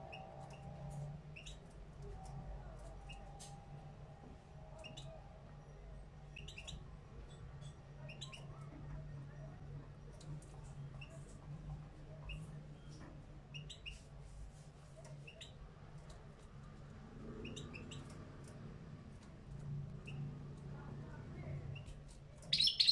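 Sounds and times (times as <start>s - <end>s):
goldfinch chirping: 22.5s - 22.9s.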